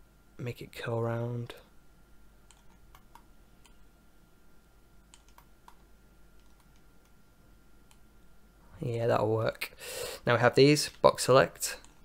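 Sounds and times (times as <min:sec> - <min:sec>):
mouse and keyboard clicks: 0:02.5 - 0:03.8, 0:05.1 - 0:05.8, 0:06.4 - 0:07.2.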